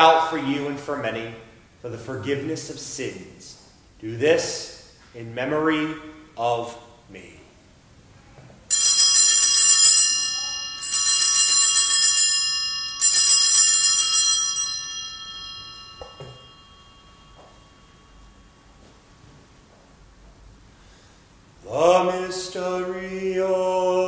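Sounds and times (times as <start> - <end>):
small hand bells shaken: 8.7 - 17.7.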